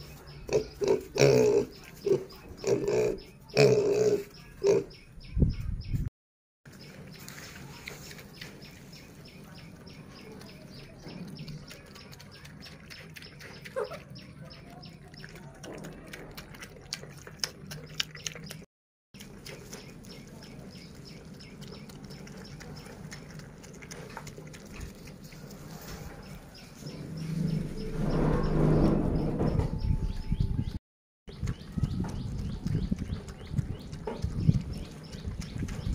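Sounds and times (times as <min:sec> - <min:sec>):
wet chewing and smacking: 0:06.7 - 0:27.0, 0:31.3 - 0:35.9
brief high squeak: 0:27.0 - 0:30.5.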